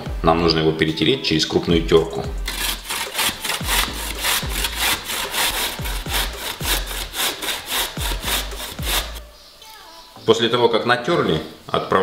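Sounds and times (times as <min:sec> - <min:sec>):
grating vegetable on box grater: 0:02.4 - 0:09.2.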